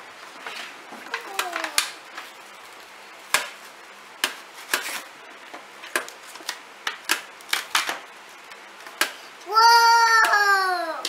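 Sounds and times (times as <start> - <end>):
plastic blister pack tearing: 5.9 - 8.1.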